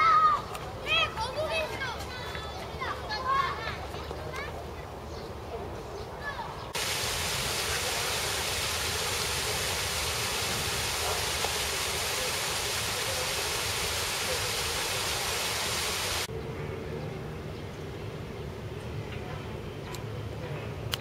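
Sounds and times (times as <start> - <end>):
water rushing down a waterfall: 6.8 - 16.3.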